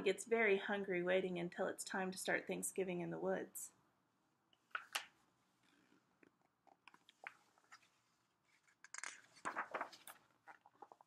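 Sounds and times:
book page turning rustles: 0:06.9 - 0:11.0.

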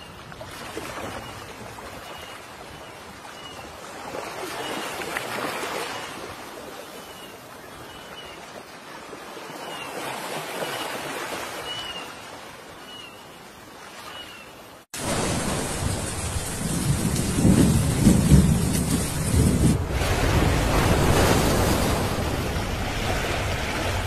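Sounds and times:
rumbling waves: 0:00.0 - 0:24.0
wind buffeting microphone: 0:15.1 - 0:24.0.

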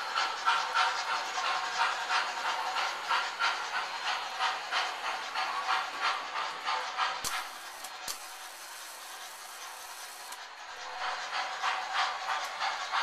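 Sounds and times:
model steam locomotive chuffing: 0:00.0 - 0:13.0.

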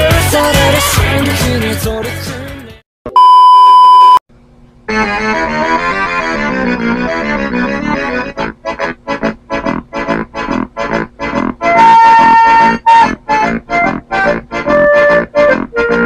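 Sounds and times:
background music: 0:00.0 - 0:02.8
keyboard music with choppy chords: 0:00.0 - 0:02.8, 0:04.9 - 0:16.0
loud electronic beep: 0:03.1 - 0:04.2.

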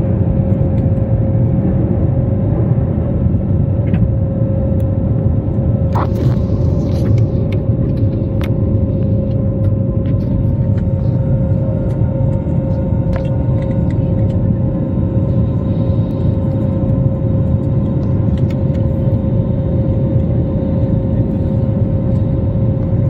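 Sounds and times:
airliner engine rumble: 0:00.0 - 0:23.0
steady hum-like tone: 0:00.0 - 0:23.0.

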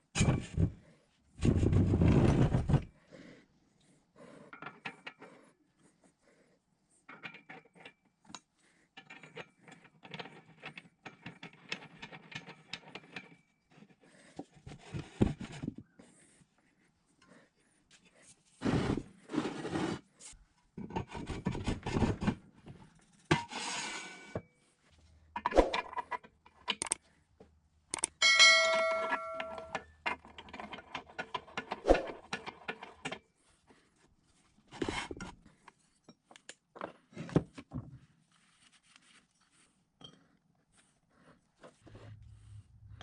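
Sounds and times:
metal parts clinking and knocking: 0:07.1 - 0:08.1, 0:25.4 - 0:27.0, 0:27.9 - 0:33.2
metal piece ringing bell-like: 0:28.2 - 0:29.8.

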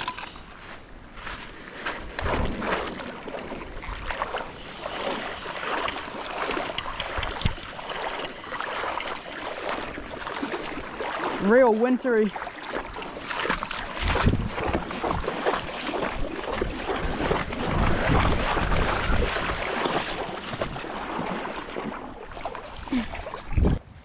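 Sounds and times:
river water splashing: 0:01.8 - 0:23.8
wind on microphone: 0:06.5 - 0:08.0, 0:13.9 - 0:21.4, 0:22.8 - 0:24.0.

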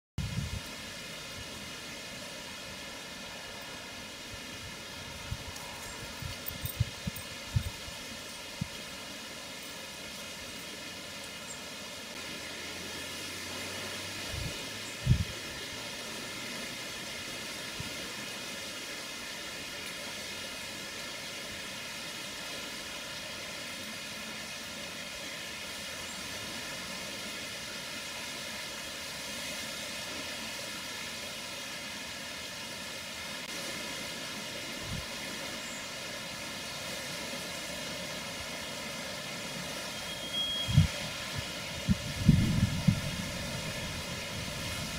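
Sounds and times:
outdoor background hiss: 0:00.2 - 0:44.9.

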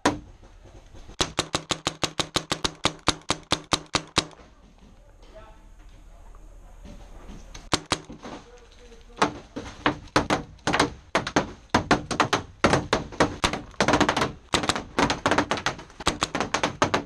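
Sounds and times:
paintball markers firing: 0:01.1 - 0:04.4, 0:07.6 - 0:08.2, 0:10.0 - 0:17.0.

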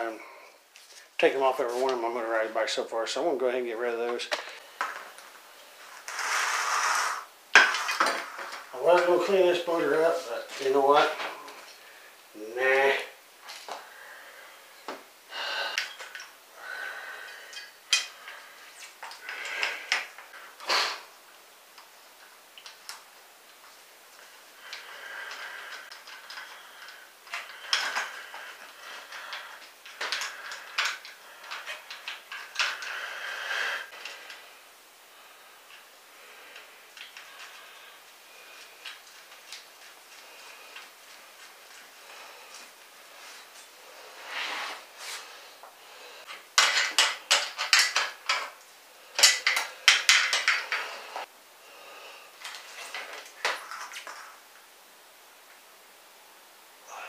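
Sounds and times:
metal parts clinking and rattling: 0:29.0 - 0:32.9, 0:46.6 - 0:48.6, 0:49.2 - 0:50.8.

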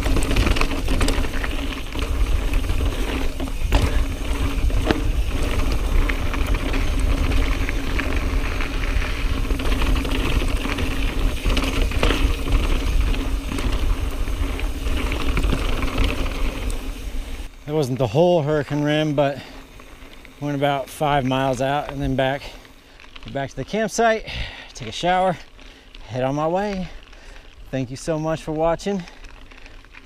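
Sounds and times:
bike knocking on rocks: 0:00.0 - 0:17.0
bike chain rattling: 0:00.0 - 0:30.0
tyres crunching over stones: 0:00.0 - 0:30.0.

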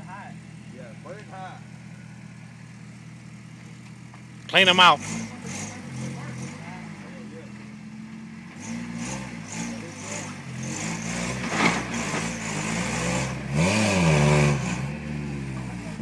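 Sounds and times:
pickup engine revving: 0:00.0 - 0:16.0.

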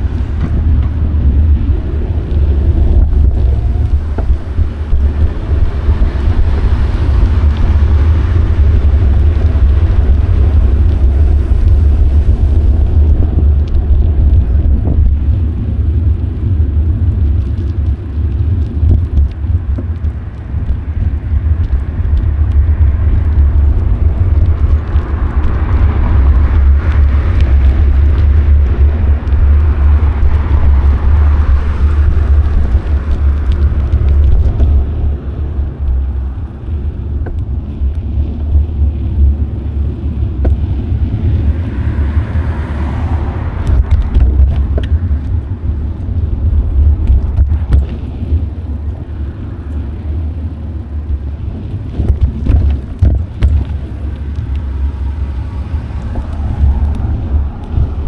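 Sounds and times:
road noise: 0:00.0 - 0:58.0
wind rumbling on microphone: 0:00.0 - 0:58.0.

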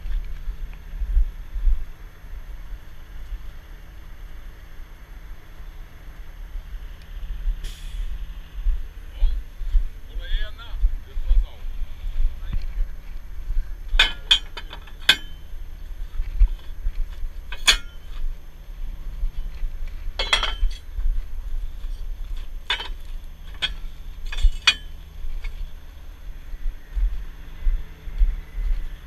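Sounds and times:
low steady rumble: 0:00.0 - 0:29.0
metal clinks and clanks: 0:14.0 - 0:15.5, 0:17.4 - 0:18.2, 0:20.2 - 0:20.9, 0:22.6 - 0:25.6.

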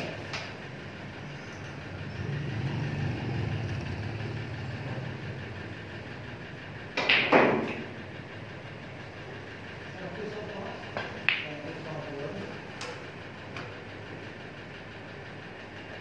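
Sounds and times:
snooker balls clicking: 0:06.9 - 0:08.0, 0:10.9 - 0:11.7.

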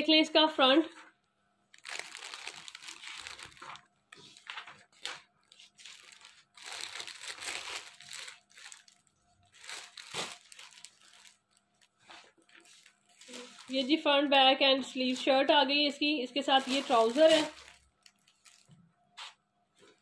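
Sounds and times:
fabric rustling and crinkling: 0:01.7 - 0:14.1, 0:16.4 - 0:20.0.

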